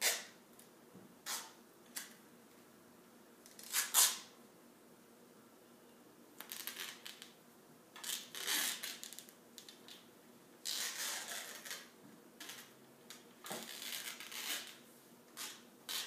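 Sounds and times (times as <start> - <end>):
tape ripping off roll: 3.5 - 4.3, 6.4 - 7.4, 8.0 - 10.0, 10.6 - 14.8, 15.4 - 16.0.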